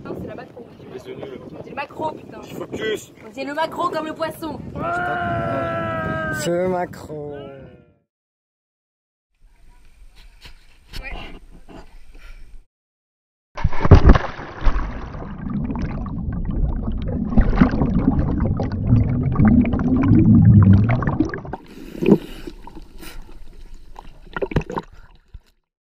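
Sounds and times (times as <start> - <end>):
water splashing: 13.6 - 25.5
water churning underwater: 13.6 - 25.6.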